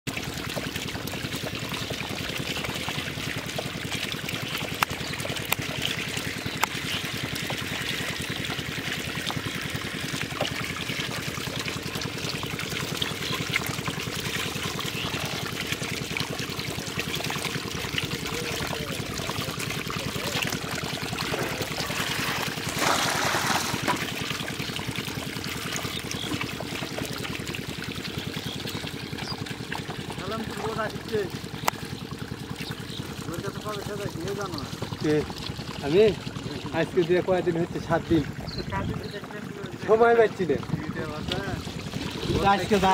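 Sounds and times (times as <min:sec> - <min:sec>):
water running and trickling: 0:00.1 - 0:42.9.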